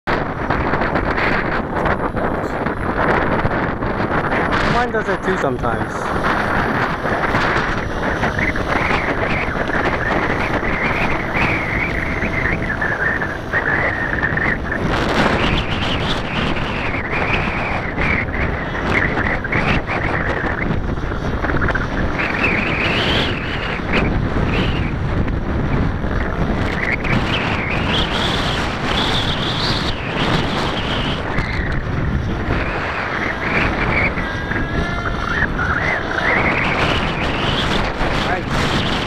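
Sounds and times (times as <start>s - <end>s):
wind buffeting microphone: 0.0s - 39.0s
distant rc helicopter whine: 0.1s - 39.0s.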